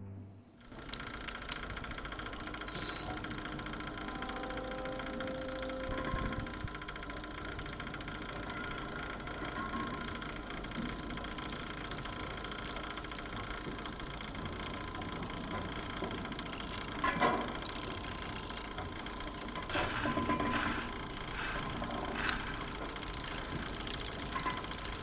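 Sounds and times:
steady mechanical hum: 0:00.0 - 0:25.0
clockwork gears whirring: 0:00.7 - 0:05.2, 0:06.3 - 0:08.4, 0:10.4 - 0:25.0
clicks and ratcheting: 0:00.8 - 0:03.4, 0:07.4 - 0:08.0, 0:10.5 - 0:25.0.

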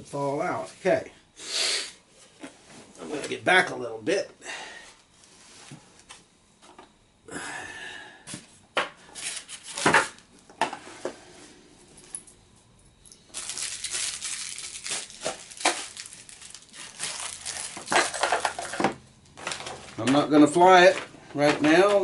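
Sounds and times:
rustling and crinkling: 0:13.2 - 0:22.0.

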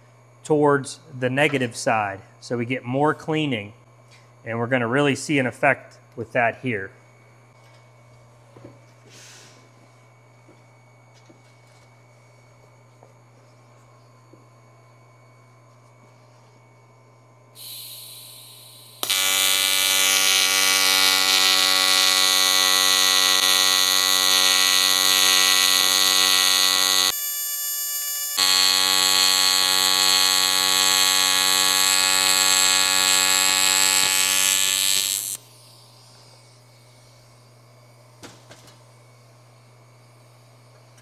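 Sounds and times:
welding arc buzzing: 0:17.6 - 0:38.1.

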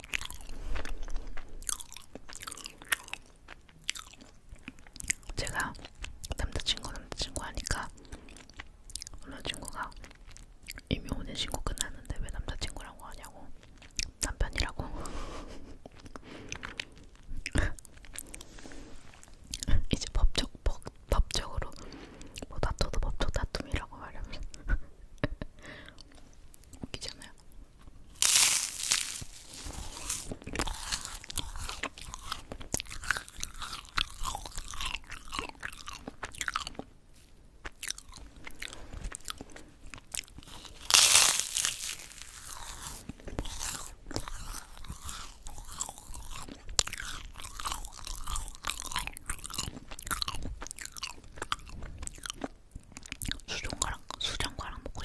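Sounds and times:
crunching and chewing: 0:00.0 - 0:23.8, 0:25.9 - 0:55.0
loud crisp bites: 0:28.1 - 0:36.8, 0:40.2 - 0:51.1.

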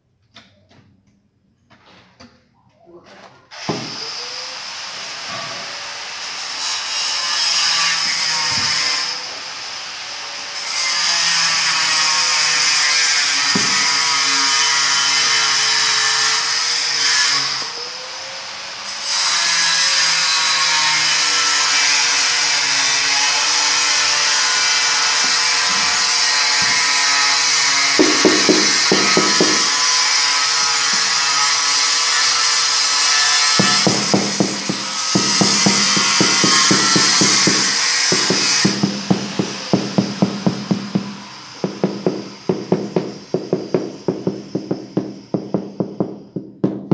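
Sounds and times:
rubber mallet tapping tile: 0:28.0 - 0:29.8, 0:33.6 - 0:46.9.

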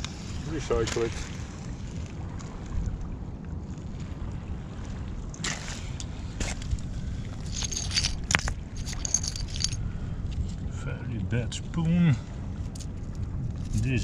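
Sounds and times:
steady low rumble: 0:01.3 - 0:14.0
stones and glass clinking: 0:07.4 - 0:09.8.

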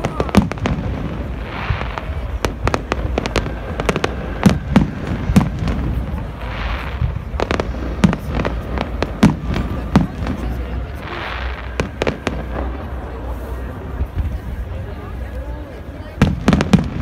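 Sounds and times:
loud firework booms: 0:00.0 - 0:13.3
fireworks bangs and crackles: 0:00.0 - 0:17.0.

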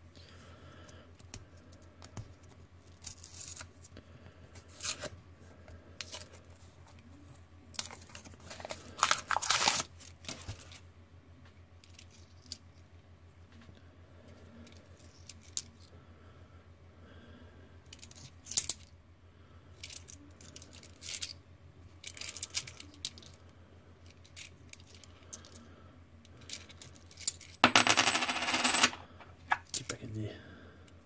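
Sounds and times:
coins clinking: 0:27.6 - 0:29.2.

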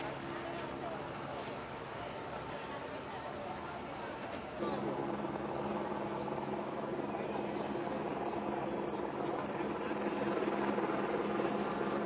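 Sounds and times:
engine droning: 0:00.0 - 0:12.0.

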